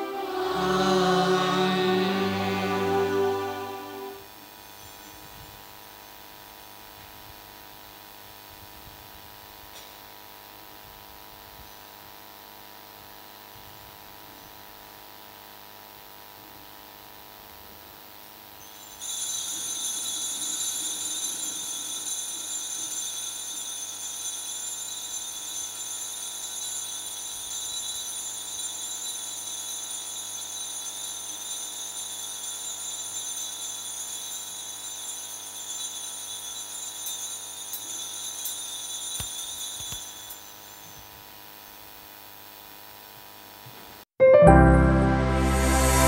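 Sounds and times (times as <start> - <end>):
altar bells jingling: 0.0 - 4.9, 18.7 - 41.1.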